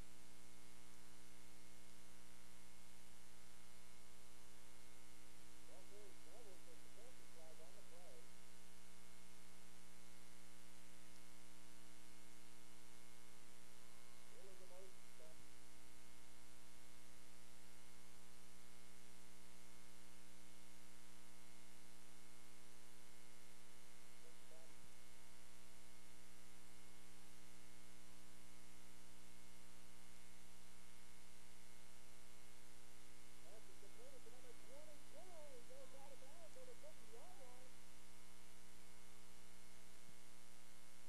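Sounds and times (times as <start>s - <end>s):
electrical mains hum: 0.0s - 41.0s
faint voice: 5.7s - 8.3s, 14.3s - 15.4s, 33.4s - 37.8s.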